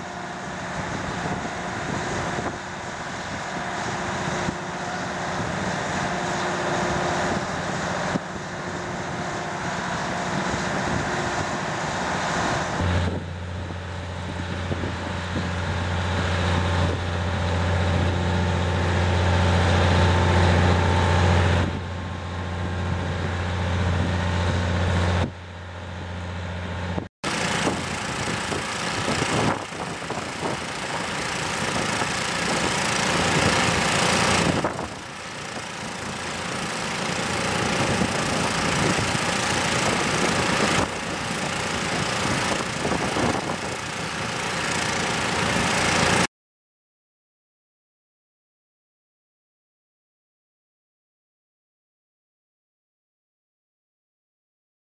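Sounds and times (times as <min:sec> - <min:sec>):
deep even machine hum: 0:00.0 - 0:46.3.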